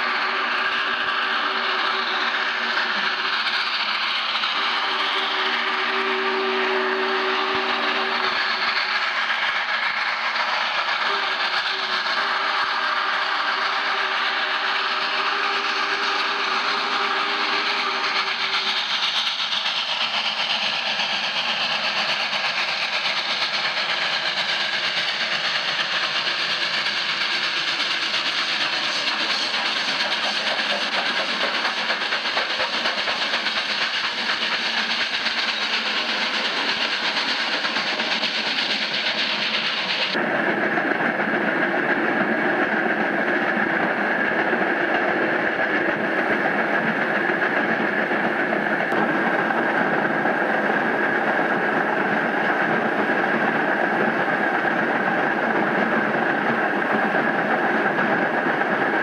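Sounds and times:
steam locomotive running: 0.0 - 59.0
steam whistle blast: 4.5 - 8.3, 11.0 - 18.0.

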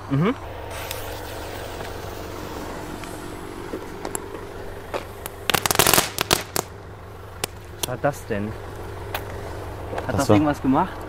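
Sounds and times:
firework hissing: 0.6 - 6.8
firework crackling pops: 0.7 - 3.3, 4.8 - 6.8, 7.4 - 8.0.

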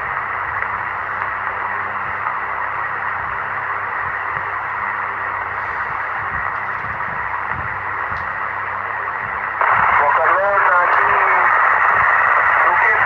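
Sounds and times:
radio static hiss: 0.0 - 13.0.

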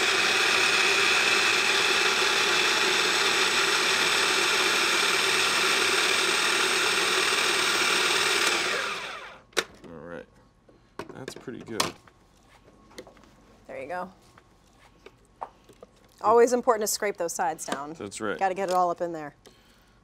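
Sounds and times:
food processor chopping: 0.0 - 9.4.

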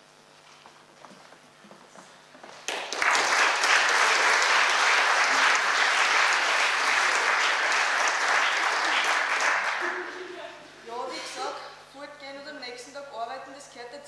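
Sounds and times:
audience applauding: 2.6 - 10.4.

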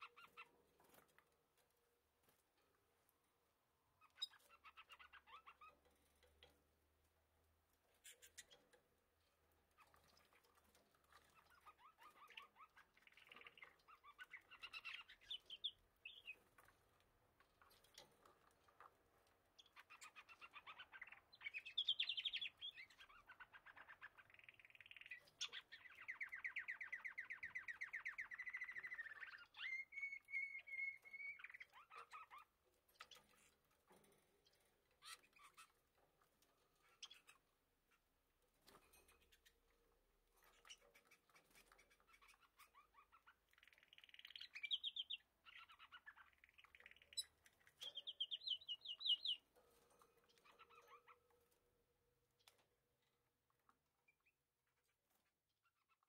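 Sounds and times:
budgerigars warbling and chattering: 4.0 - 5.8, 11.1 - 16.4, 19.6 - 33.5, 36.8 - 37.4, 40.4 - 49.4.

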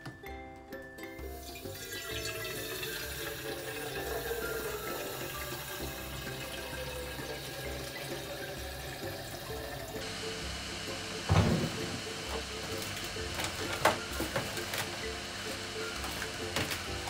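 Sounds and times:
soft ukulele music: 0.0 - 1.8, 3.1 - 17.0
water rushing: 1.4 - 12.6.

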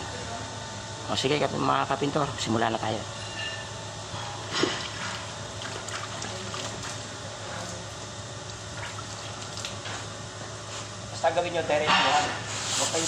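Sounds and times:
water splashing and trickling: 4.6 - 7.1.

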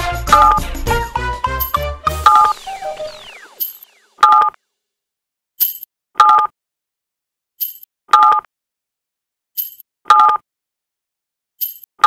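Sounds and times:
high electronic sparkle: 0.3 - 4.4
two-tone electronic blip: 2.1 - 4.6.

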